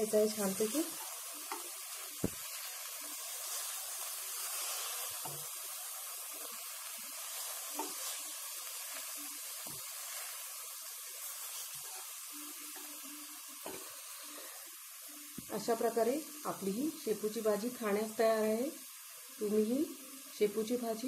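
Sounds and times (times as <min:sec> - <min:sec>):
spatula stirring food in pan: 0:00.0 - 0:16.6
sizzling hiss: 0:00.0 - 0:21.0.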